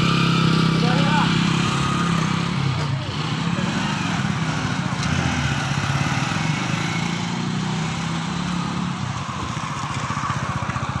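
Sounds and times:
small engine idling: 9.0 - 11.0.

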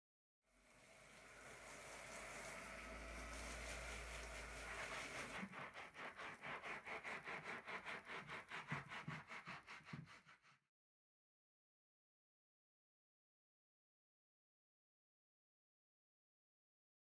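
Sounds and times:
shower spray on rug: 0.7 - 10.1
hand scrubbing soapy rug: 1.4 - 10.7.

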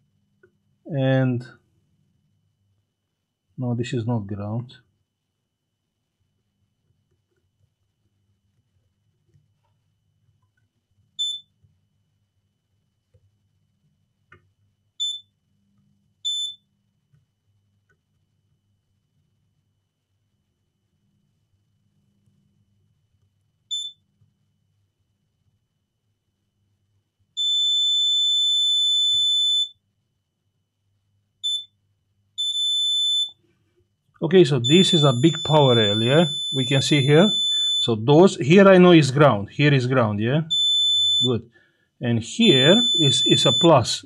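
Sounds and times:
multimeter high-pitched beeps: 11.2 - 11.5, 15.0 - 15.3, 16.3 - 16.6, 23.7 - 24.0, 27.4 - 29.8, 31.4 - 31.8, 32.4 - 33.4, 34.6 - 37.9, 40.4 - 41.4, 42.4 - 44.0.

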